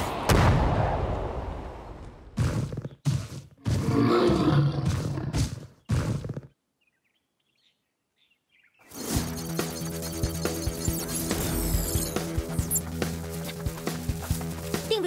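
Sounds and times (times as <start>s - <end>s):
music: 8.9s - 15.0s.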